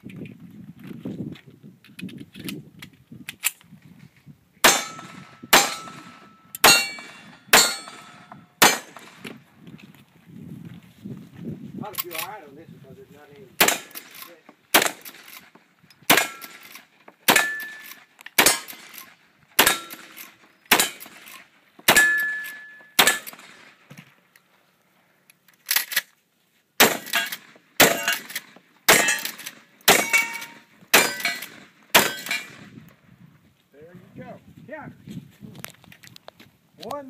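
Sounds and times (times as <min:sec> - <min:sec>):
metallic ring of steel targets: 0:04.6 - 0:09.1, 0:17.3 - 0:18.9, 0:19.6 - 0:21.2, 0:21.9 - 0:23.5, 0:26.8 - 0:32.6
gunshots: 0:04.6 - 0:09.3, 0:13.6 - 0:15.5, 0:16.1 - 0:21.3, 0:21.9 - 0:23.8, 0:26.8 - 0:32.7.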